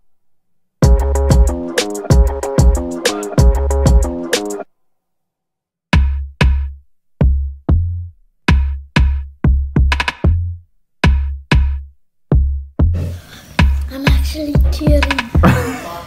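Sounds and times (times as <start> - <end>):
electronic music with drum-machine beat: 0.8 - 4.6, 12.4 - 15.6.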